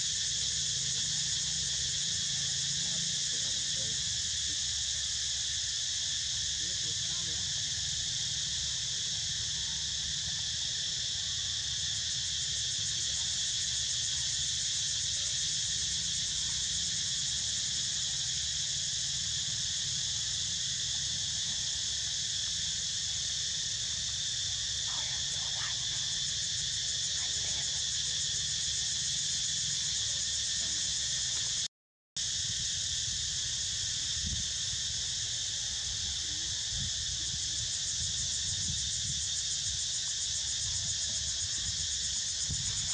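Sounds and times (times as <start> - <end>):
insect chorus chirring: 0.0 - 42.9.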